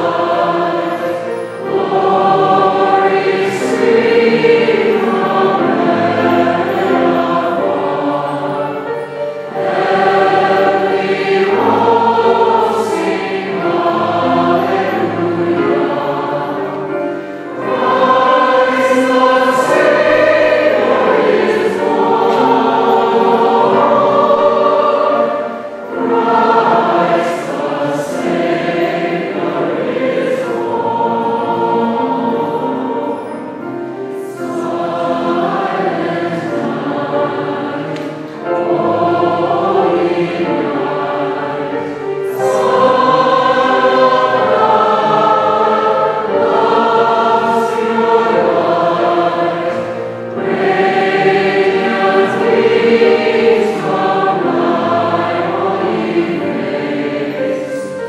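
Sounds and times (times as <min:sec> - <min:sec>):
mixed choir singing a hymn: 0:00.0 - 0:58.0
piano accompaniment: 0:00.0 - 0:58.0.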